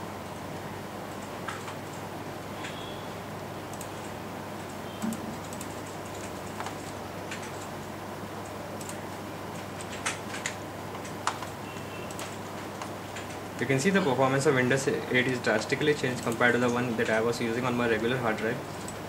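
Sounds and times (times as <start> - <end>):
steady background hiss: 0.0 - 19.0
computer keyboard clicks: 3.7 - 7.7, 8.4 - 13.7, 18.7 - 19.0.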